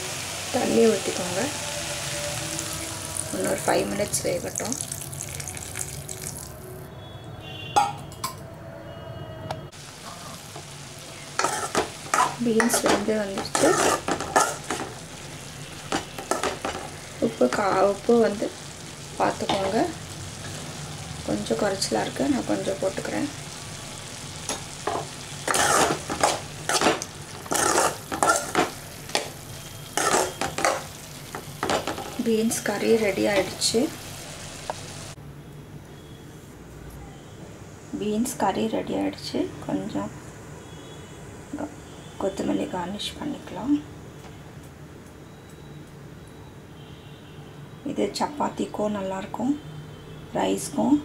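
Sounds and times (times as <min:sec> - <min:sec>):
spoon stirring curry in a pan: 0:24.8 - 0:32.2.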